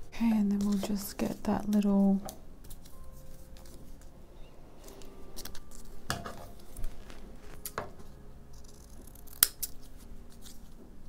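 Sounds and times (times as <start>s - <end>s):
scissors snipping paper: 0.5s - 1.9s, 8.5s - 10.8s
paper rustling: 0.6s - 4.1s, 4.8s - 8.2s.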